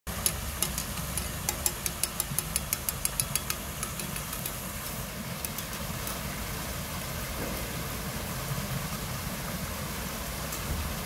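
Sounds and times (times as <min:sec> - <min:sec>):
rapid sharp ticks: 0:00.1 - 0:06.2
fountain water pouring into pool: 0:00.1 - 0:11.0.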